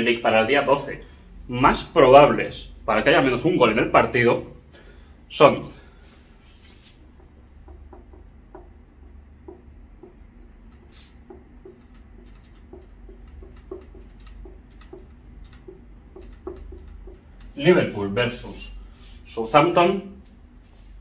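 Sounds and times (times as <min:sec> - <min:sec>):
marker writing on whiteboard: 0:09.4 - 0:19.6.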